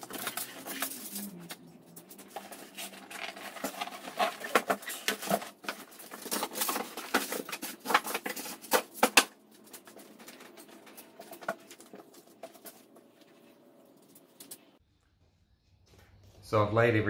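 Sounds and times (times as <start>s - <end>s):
cardboard and paper rustling: 0.0s - 14.6s.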